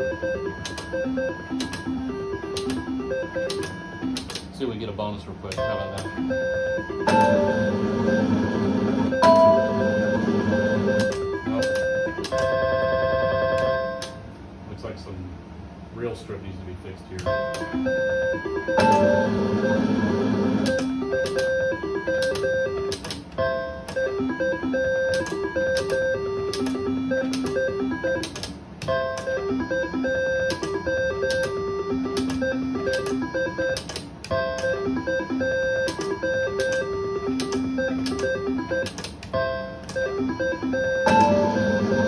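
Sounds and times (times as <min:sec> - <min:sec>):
slot machine game music: 0:00.0 - 0:04.4, 0:05.6 - 0:14.1, 0:17.3 - 0:42.0
noisy whir: 0:00.0 - 0:42.0
slot machine reels spinning: 0:05.6 - 0:13.8, 0:17.4 - 0:23.1, 0:23.9 - 0:28.4, 0:29.0 - 0:39.0, 0:39.9 - 0:42.0.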